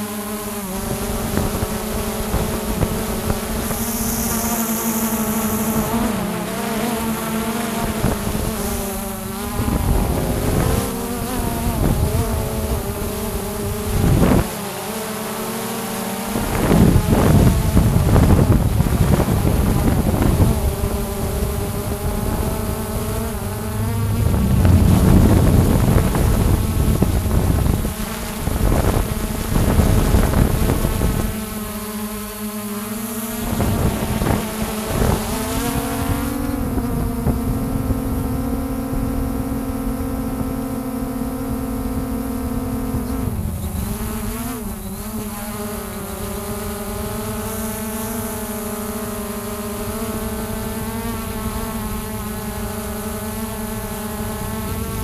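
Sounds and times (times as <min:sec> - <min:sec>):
drone propellers buzzing: 0:00.0 - 0:55.0
rushing noise: 0:21.5 - 0:27.9.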